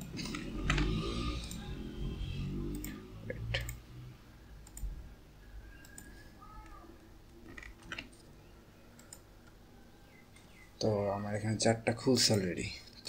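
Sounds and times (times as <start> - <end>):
computer mouse and keyboard clicks: 0.0 - 1.7, 2.7 - 3.8, 4.6 - 4.9, 5.7 - 8.3, 8.9 - 9.6.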